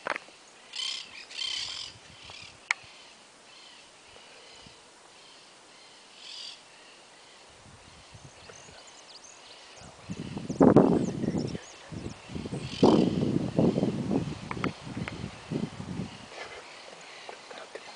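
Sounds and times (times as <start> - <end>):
birds calling high-pitched: 0.4 - 13.9
faint chirping: 0.4 - 13.9.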